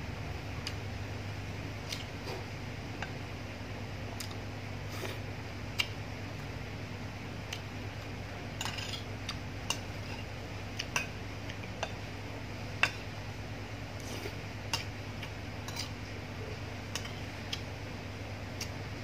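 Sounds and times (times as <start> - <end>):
metal spoon scraping ceramic plate: 8.6 - 9.1.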